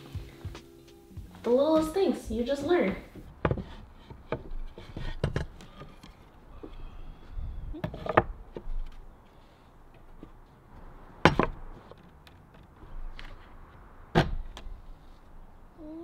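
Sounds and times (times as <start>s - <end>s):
wooden panels knocking: 3.2s - 6.8s.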